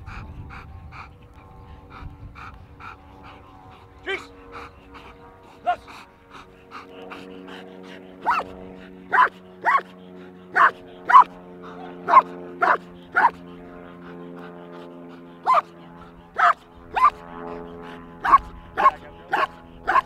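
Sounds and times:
dog barking: 8.2 - 8.5, 9.1 - 9.9, 10.6 - 11.3, 12.0 - 13.4, 15.4 - 15.7, 16.4 - 17.2, 18.2 - 20.0.

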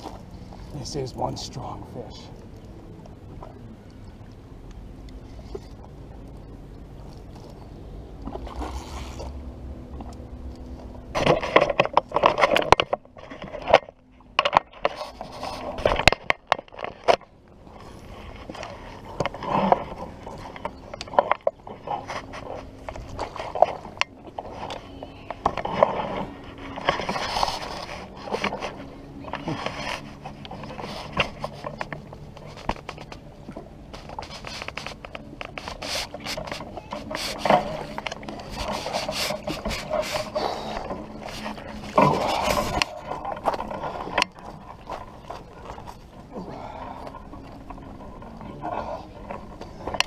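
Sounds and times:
fishing reel scraping and knocking: 34.0 - 46.0.

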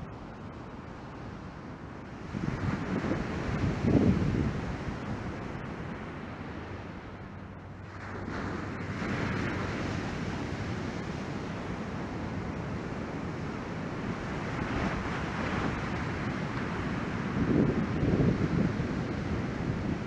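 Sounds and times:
wind buffeting microphone: 1.6 - 20.0
ocean surf breaking: 7.9 - 20.0.

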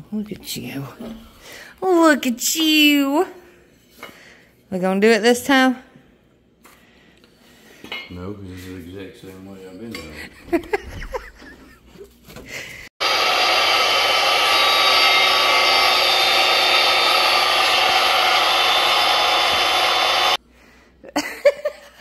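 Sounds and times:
circular saw cutting wood: 13.0 - 20.4.

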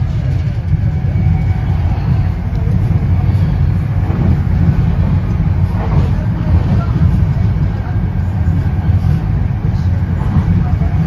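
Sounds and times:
train coach rumbling inside: 0.0 - 11.0.

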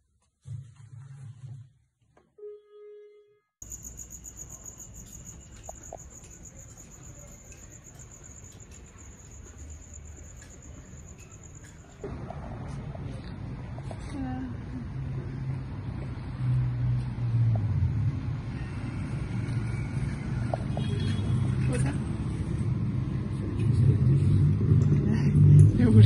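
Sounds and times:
insects trilling: 3.6 - 11.8.

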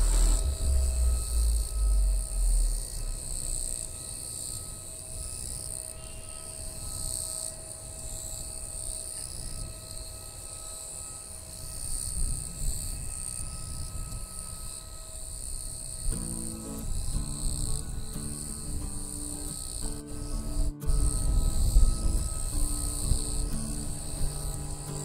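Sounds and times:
thin engine tones: 0.0 - 4.9, 16.1 - 25.0
distant jet engines rumbling: 0.0 - 5.0, 13.6 - 25.0
insects buzzing: 0.0 - 25.0.

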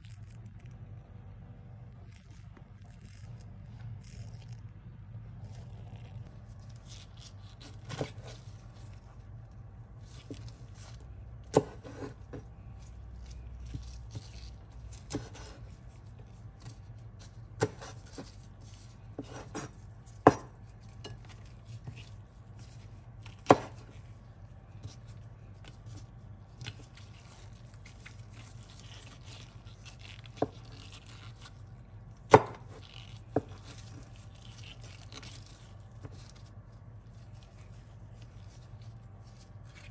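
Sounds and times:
steady low hum: 0.0 - 39.9
knife striking cutting board: 20.3 - 20.5, 32.3 - 33.6.

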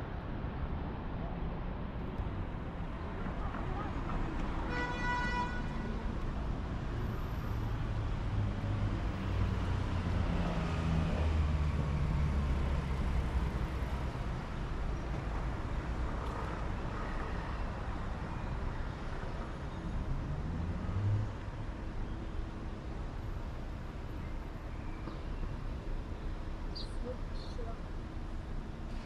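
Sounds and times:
street traffic: 0.0 - 29.0
vehicle engine hum passing: 7.3 - 14.3.

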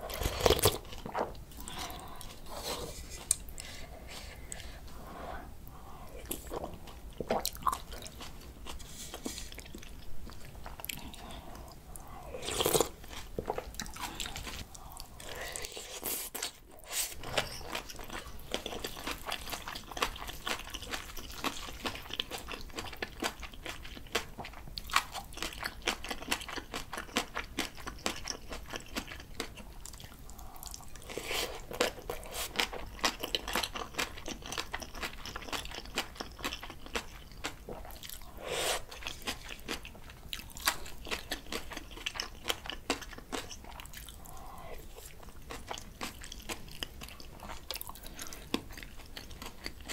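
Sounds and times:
wet crunching chewing: 17.2 - 44.3, 45.0 - 49.9.

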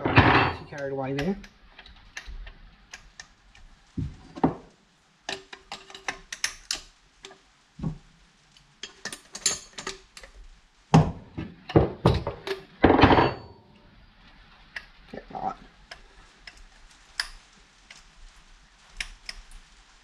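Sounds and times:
dense metallic rattle: 0.0 - 0.8, 12.0 - 13.6.

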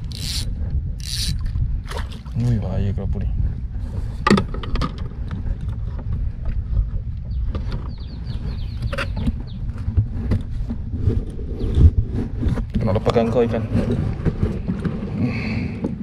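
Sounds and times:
fishing gear clicking on kayak: 0.0 - 1.6
wind buffeting microphone: 0.0 - 16.0.

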